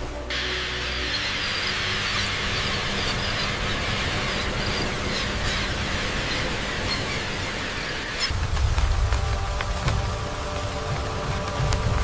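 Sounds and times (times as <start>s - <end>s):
low steady hum: 0.0s - 12.0s
bats squeaking and chirping: 0.3s - 8.4s.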